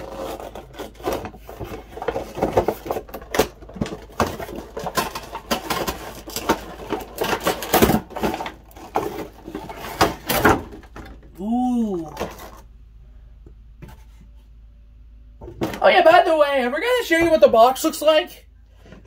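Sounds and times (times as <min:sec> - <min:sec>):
toy box rustling and clicking: 0:00.0 - 0:11.2.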